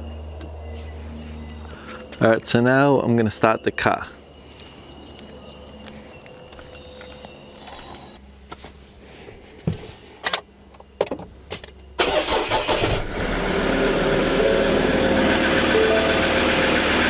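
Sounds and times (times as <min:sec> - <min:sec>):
car engine idling: 0:12.0 - 0:17.0.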